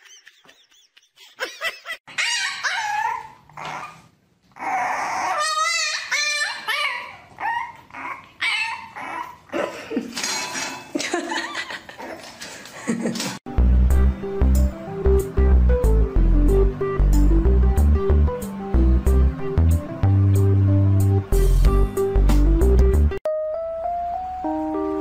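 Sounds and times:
puppy yipping and whining: 2.1s - 9.5s.

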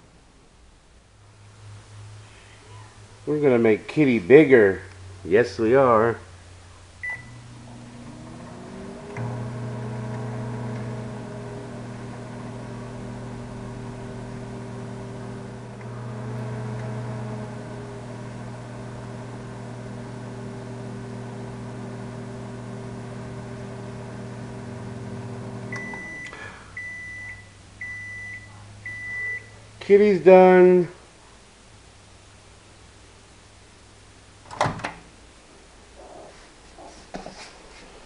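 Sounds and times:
microwave beeps: 7.0s - 7.5s, 25.0s - 29.6s
microwave oven humming: 7.0s - 29.7s.

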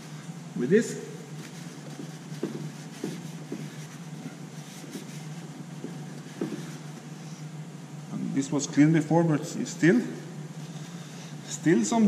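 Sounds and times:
low background hum: 0.0s - 12.0s
cloth rubbing: 1.3s - 7.6s.

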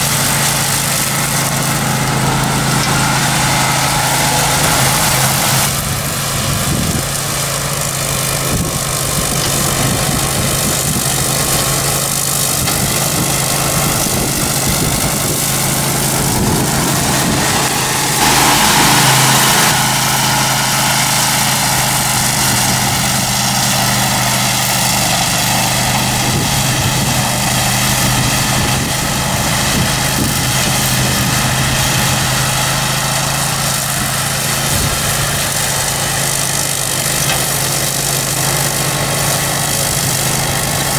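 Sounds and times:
blades cutting dry grass: 0.0s - 40.9s
ride-on mower engine running: 0.0s - 40.9s
rush of noise: 12.9s - 23.1s.

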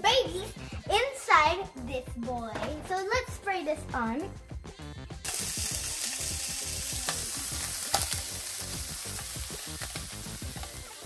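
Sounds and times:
food sizzling in a frying pan: 5.2s - 11.0s
metal tongs clicking on pan: 7.0s - 8.2s.

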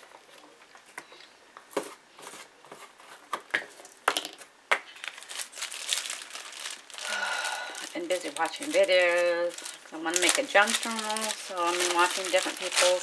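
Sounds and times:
plastic wrapping crinkling: 4.9s - 13.0s.

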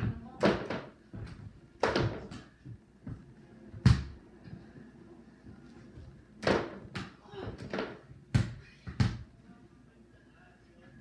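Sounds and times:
ball bouncing on hard floor: 0.0s - 4.2s, 6.4s - 9.3s.

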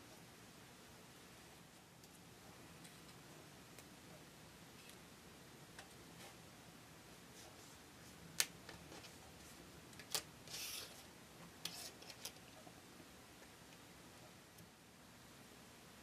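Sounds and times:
cardstock sliding rustle: 10.0s - 11.0s.

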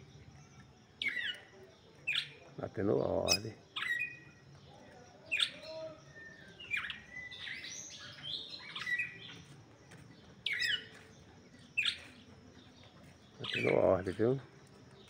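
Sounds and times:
bird twittering: 1.0s - 2.4s, 3.0s - 4.4s, 5.3s - 9.5s, 10.4s - 12.3s, 13.3s - 14.3s
bird chip calls: 1.0s - 2.5s, 3.1s - 4.4s, 5.3s - 9.5s, 10.4s - 12.3s, 13.3s - 14.4s.

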